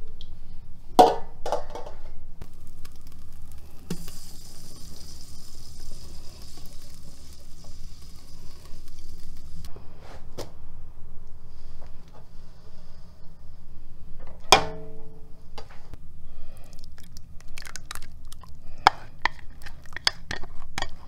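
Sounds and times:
sizzle in hot pot: 2.4 - 9.7.

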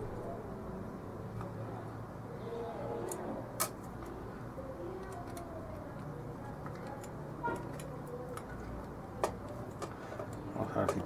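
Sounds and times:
plastic toy clicks and taps: 9.2 - 11.0.

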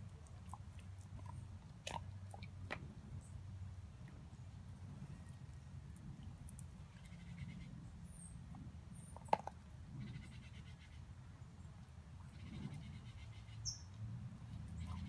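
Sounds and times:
dog gnawing a bone: 0.0 - 3.2, 8.6 - 9.6.

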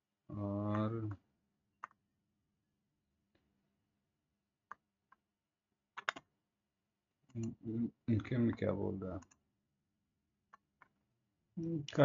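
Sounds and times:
computer mouse clicking: 1.8 - 2.0, 6.0 - 6.3, 7.3 - 9.4.

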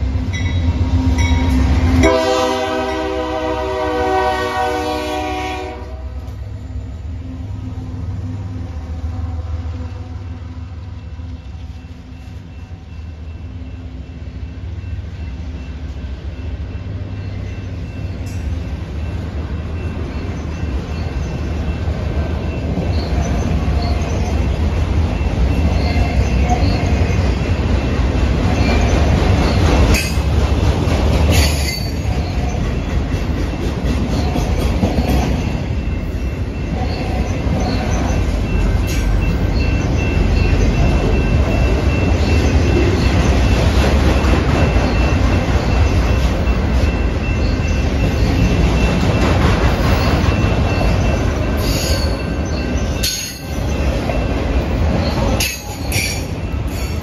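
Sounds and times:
diesel locomotives rumbling: 0.0 - 57.0
train air horn: 2.0 - 6.3
wheel-on-rail noise: 7.2 - 57.0
wheel squeal: 31.3 - 32.6, 34.1 - 43.6, 44.6 - 57.0.

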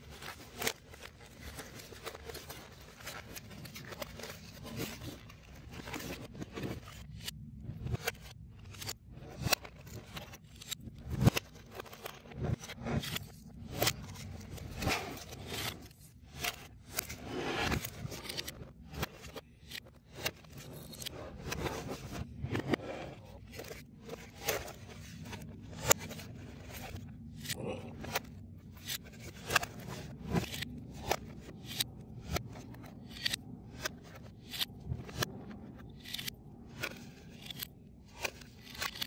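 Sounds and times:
foam puzzle pieces scraping: 0.0 - 28.2.

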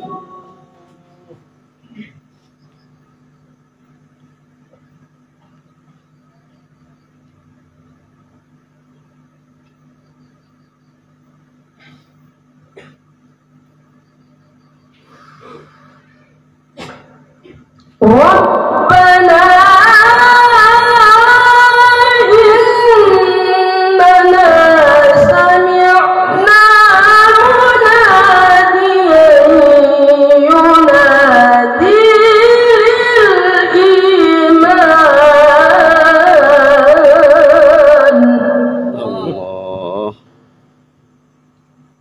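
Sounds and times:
boy chanting through microphone: 38.1 - 40.2.

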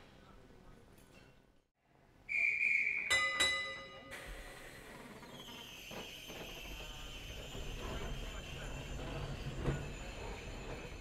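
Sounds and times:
whistle blast: 2.3 - 3.4
tram bell ringing: 3.1 - 4.2.

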